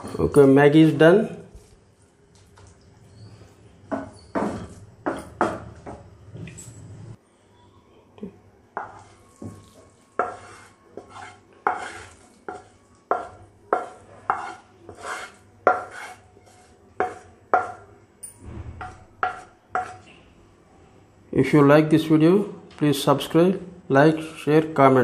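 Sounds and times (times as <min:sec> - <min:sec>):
spatula knocking on pan: 0:10.2 - 0:16.2, 0:17.0 - 0:17.8, 0:18.8 - 0:20.0.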